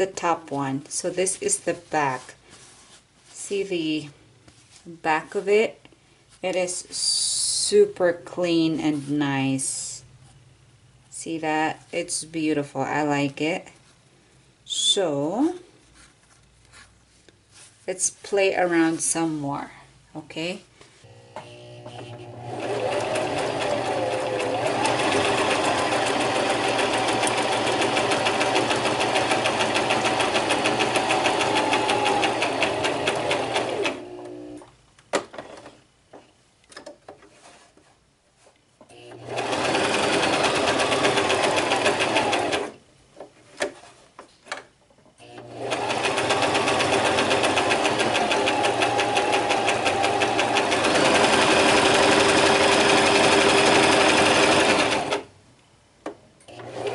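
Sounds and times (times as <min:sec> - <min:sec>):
sewing machine stitching: 0:21.4 - 0:34.6, 0:38.9 - 0:42.8, 0:45.2 - 0:55.3, 0:56.5 - 0:56.9.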